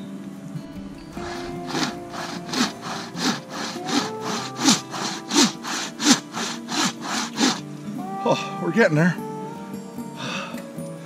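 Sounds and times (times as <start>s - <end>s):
bow saw cutting log: 1.2s - 7.6s.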